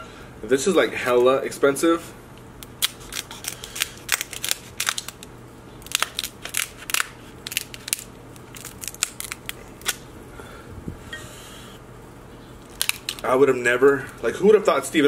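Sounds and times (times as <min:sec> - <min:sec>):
crunching snips and cracks: 0:02.5 - 0:10.1, 0:12.6 - 0:14.2.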